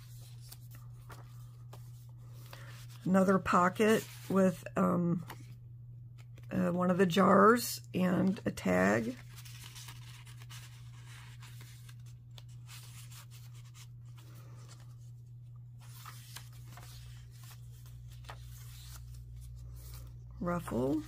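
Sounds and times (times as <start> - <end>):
paper rustling: 0.0 - 4.5, 8.8 - 21.0
steady low hum: 0.0 - 21.0.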